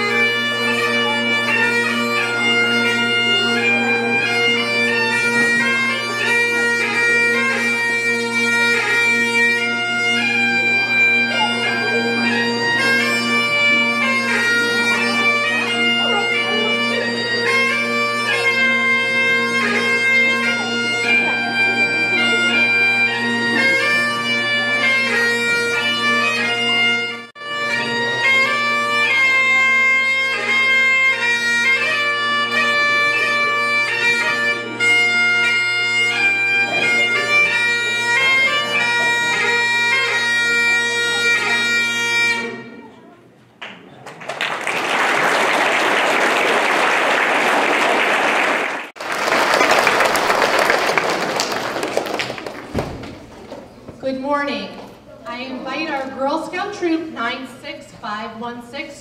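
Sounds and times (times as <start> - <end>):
bagpipe playing a tune: 0.0 - 43.0
audience applauding: 43.6 - 53.6.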